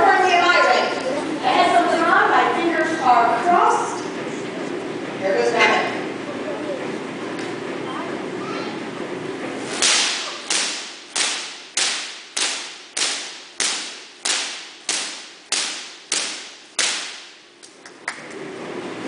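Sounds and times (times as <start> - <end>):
artificial lightning cracks: 9.8 - 17.4.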